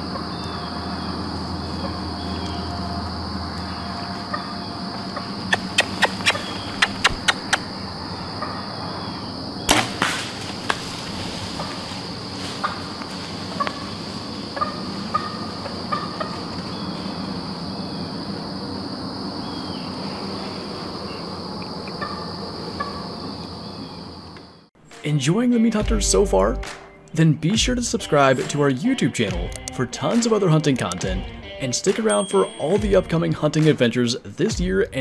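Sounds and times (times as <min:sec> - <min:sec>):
crickets chirping: 0:00.0 - 0:24.7, 0:27.1 - 0:35.0
dry clicks and crunches: 0:29.4 - 0:29.8.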